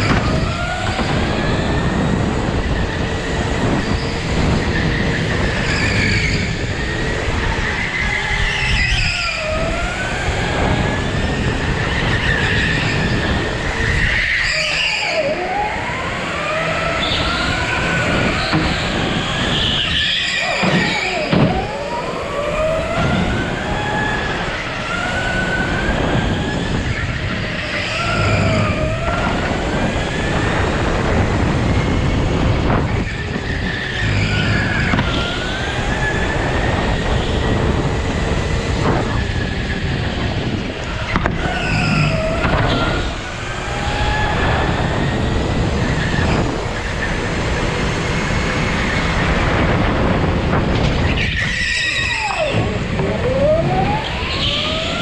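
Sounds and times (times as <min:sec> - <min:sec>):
go-kart motor revving: 0:00.0 - 0:55.0
tyre and wind rush: 0:00.0 - 0:55.0
tyre squeal: 0:03.8 - 0:09.7, 0:11.1 - 0:15.5, 0:16.7 - 0:22.1, 0:41.0 - 0:43.2, 0:51.0 - 0:55.0.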